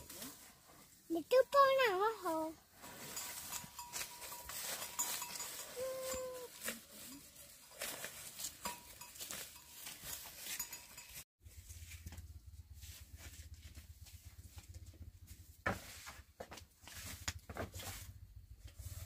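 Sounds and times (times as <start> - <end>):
water buffalo chewing grass: 2.9 - 11.9
animal call: 5.7 - 6.8.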